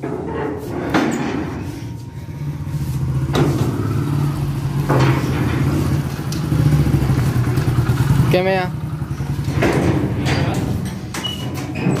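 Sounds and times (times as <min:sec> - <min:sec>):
motorcycle engine idling: 0:01.8 - 0:11.2
metal gate clanking: 0:09.2 - 0:12.0.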